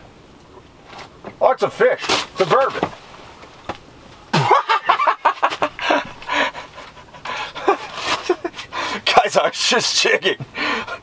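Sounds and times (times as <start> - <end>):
man panting: 5.8 - 9.1, 10.4 - 11.0.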